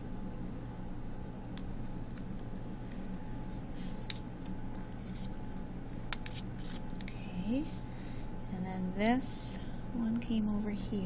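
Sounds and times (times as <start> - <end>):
steady low hum: 0.0 - 11.0
sharp clicks of pieces handled: 4.0 - 4.9.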